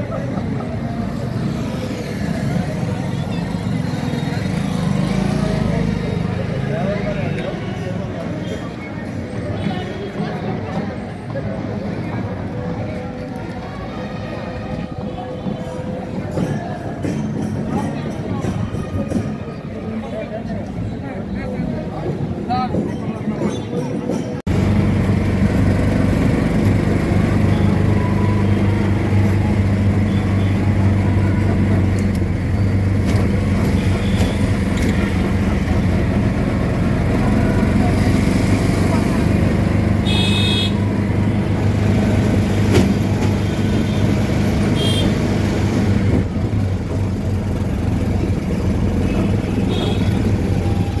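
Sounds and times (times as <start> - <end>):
traffic noise: 0.0 - 51.0
vehicle engine hum: 24.4 - 51.0.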